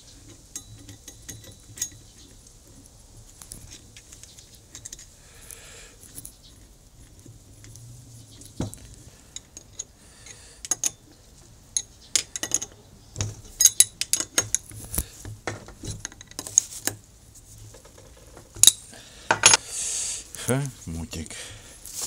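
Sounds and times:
metal parts clinking: 0:11.8 - 0:12.8, 0:13.4 - 0:15.0.

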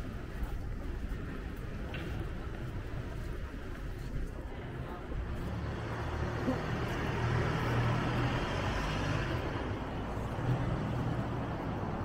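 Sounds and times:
vehicle engine passing by: 0:05.4 - 0:11.9.

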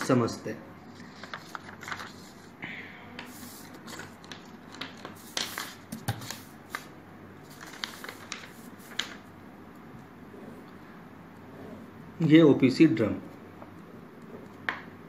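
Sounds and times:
paper rustling and crinkling: 0:00.8 - 0:02.6, 0:03.2 - 0:09.3.

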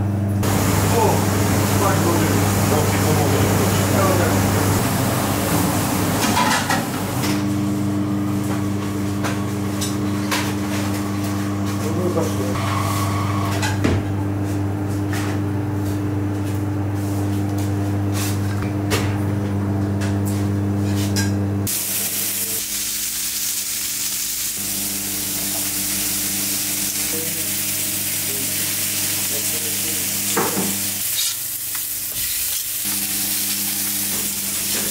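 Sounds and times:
kitchen appliance humming: 0:00.0 - 0:34.9
meat sizzling on a grill: 0:21.7 - 0:34.9.

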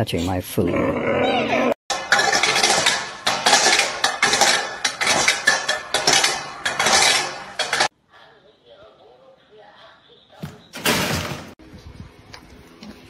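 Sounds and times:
metal bowl scraping over brick: 0:01.9 - 0:07.9.

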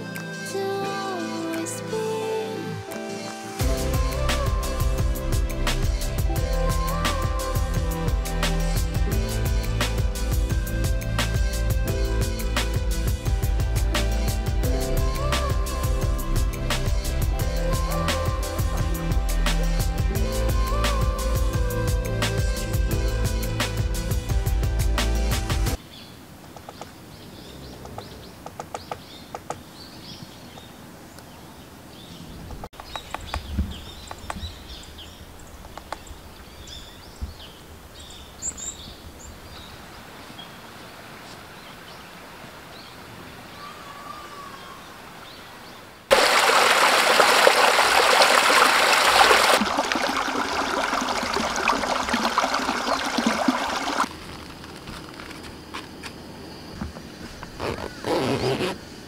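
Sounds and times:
small birds chirping: 0:25.8 - 0:46.0.

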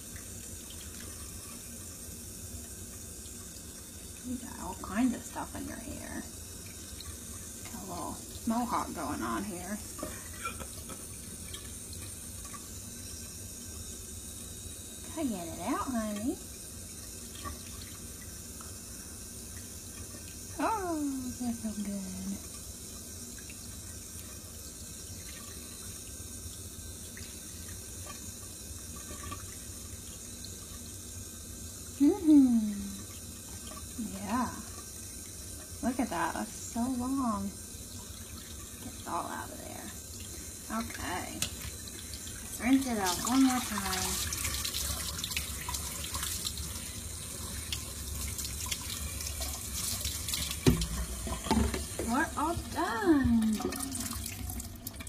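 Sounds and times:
tap water running into sink: 0:00.0 - 0:55.0
thump: 0:50.6 - 0:50.9.

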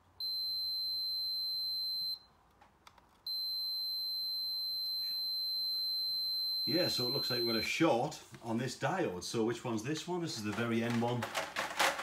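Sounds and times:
multimeter continuity beep: 0:00.2 - 0:02.3, 0:03.3 - 0:07.7.

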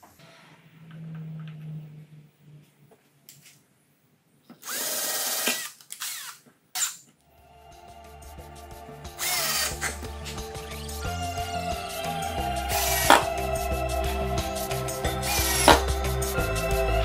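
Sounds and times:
cordless drill driving screws: 0:04.6 - 0:07.0, 0:09.2 - 0:09.7, 0:15.2 - 0:15.8
background music: 0:07.3 - 0:17.0.

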